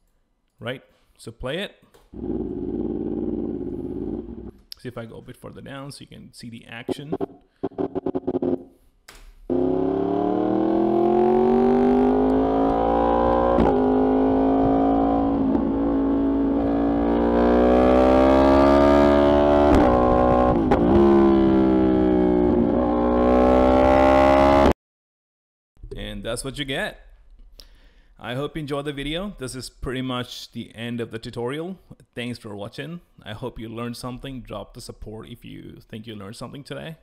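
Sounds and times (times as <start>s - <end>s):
motorcycle engine revving: 2.2s - 4.6s, 7.2s - 8.7s, 9.5s - 24.7s.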